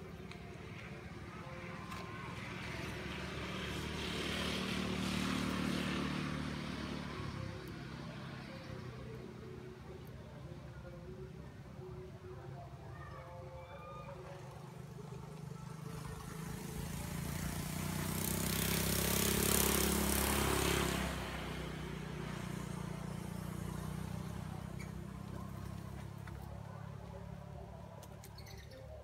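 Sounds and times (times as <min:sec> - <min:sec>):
vehicle driving past: 0:01.3 - 0:09.2, 0:14.2 - 0:27.7.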